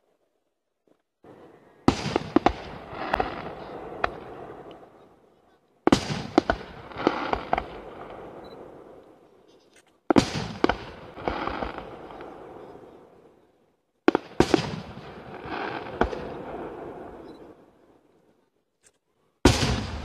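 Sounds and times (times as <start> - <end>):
firework crackling: 5.9 - 8.1, 10.1 - 12.5, 14.1 - 17.1.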